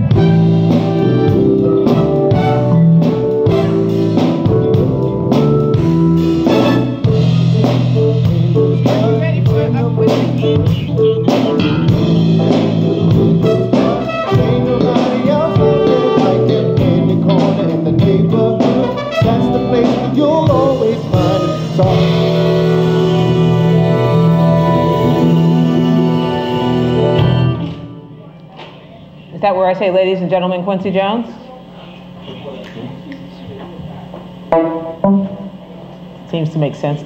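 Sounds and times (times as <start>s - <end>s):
band playing jazzy groove: 0.0s - 28.1s, 34.2s - 35.7s
drum kit beat: 0.0s - 28.1s, 34.4s - 35.6s
keyboard chords: 0.0s - 28.5s, 34.5s - 35.8s.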